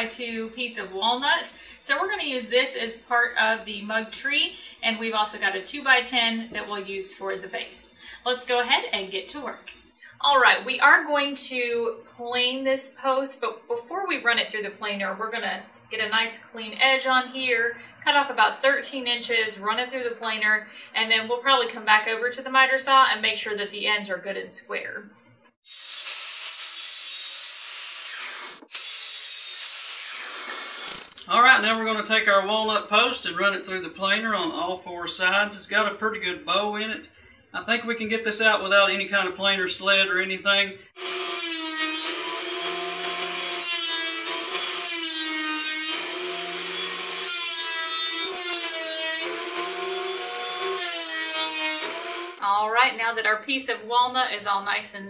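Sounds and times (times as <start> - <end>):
miter saw cutting wood: 25.6 - 31.2, 40.9 - 52.4
planer whining through wood: 41.0 - 52.4.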